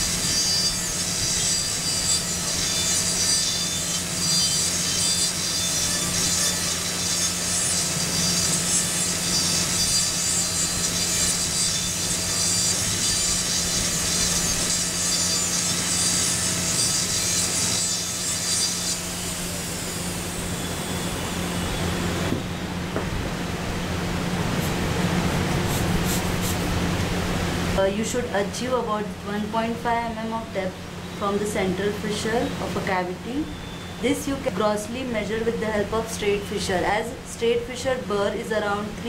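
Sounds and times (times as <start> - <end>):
grinding rasp of cutting: 0.0 - 21.7, 24.5 - 26.8
dental drill whining: 0.0 - 22.2
low steady hum: 18.8 - 39.0.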